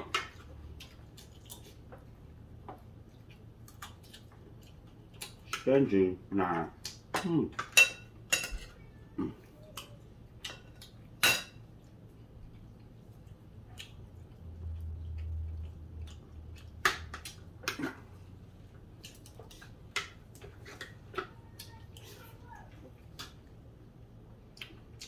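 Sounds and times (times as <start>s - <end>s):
cutlery clinking on plates: 7.2s - 8.8s.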